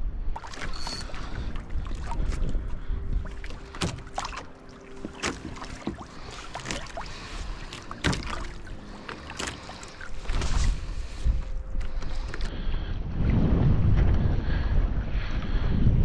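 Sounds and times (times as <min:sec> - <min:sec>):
faint low wind rumble: 0:00.0 - 0:16.0
water splashing and dripping: 0:00.3 - 0:12.5
knocks and clicks on hull: 0:03.2 - 0:10.8.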